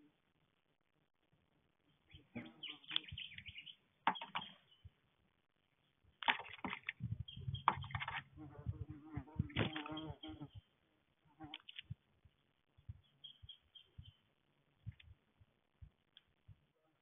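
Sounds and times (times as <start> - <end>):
bird chirps: 1.9 - 5.0, 5.6 - 8.4, 9.3 - 10.8, 11.6 - 15.0
bird splashing in water: 6.2 - 7.0.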